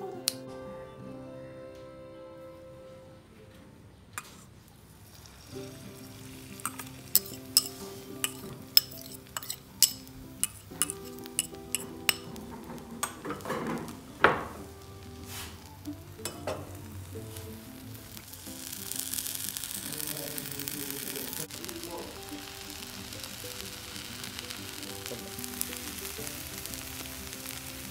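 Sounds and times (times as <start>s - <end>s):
oil sizzling: 4.2s - 27.9s
spoon clinking on pan: 6.6s - 13.7s, 16.2s - 16.7s.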